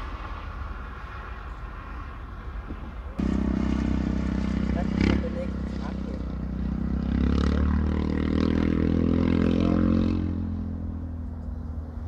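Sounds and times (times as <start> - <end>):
jet engines rumbling and whining: 0.0 - 6.9.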